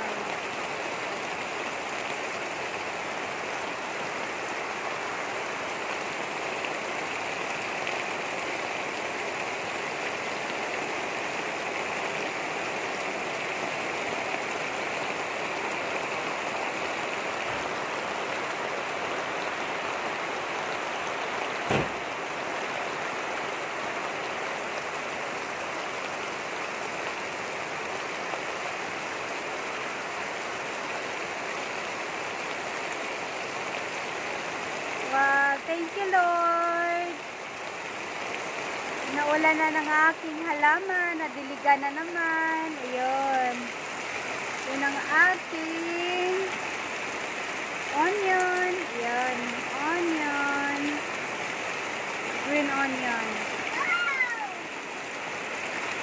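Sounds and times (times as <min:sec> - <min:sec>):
steady rain falling: 0:00.0 - 0:56.0
sharp knock: 0:21.7 - 0:22.0.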